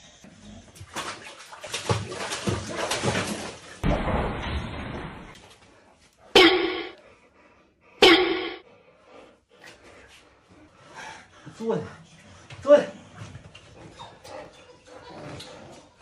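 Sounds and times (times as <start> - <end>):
water splashing in bath tub: 0.6 - 5.5.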